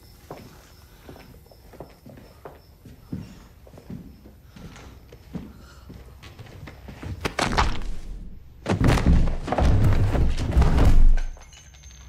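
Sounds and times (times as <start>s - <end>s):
bodies crashing onto floor: 7.2s - 11.4s
heavy thuds of people grappling: 7.2s - 11.4s.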